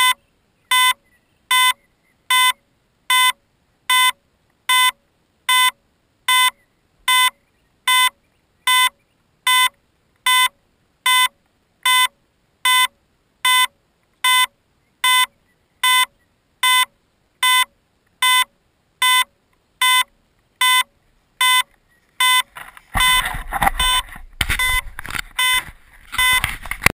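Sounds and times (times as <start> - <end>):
electronic beeper short beeps: 0.0 - 9.7, 14.3 - 26.5
camera handling rumble: 22.5 - 26.9.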